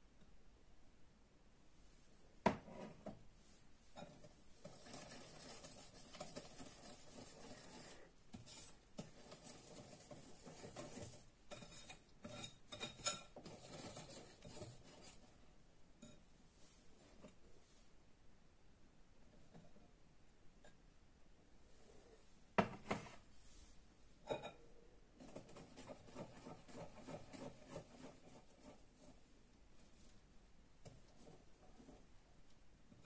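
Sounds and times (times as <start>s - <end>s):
whisk stirring batter in glass bowl: 4.0s - 16.2s, 25.2s - 30.1s, 30.8s - 32.1s.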